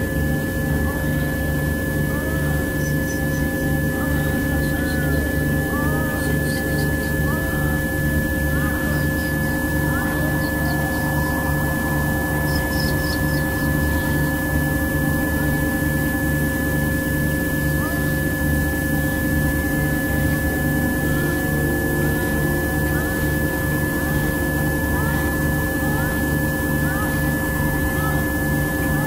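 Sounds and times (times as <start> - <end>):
low pulsing tone: 0.0 - 29.0
steady electronic tones over drone: 0.0 - 29.0
faint gliding chirps: 1.0 - 29.0.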